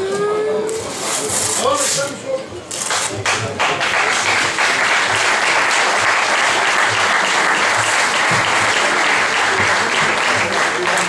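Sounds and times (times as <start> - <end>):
audience applauding: 2.9 - 11.0.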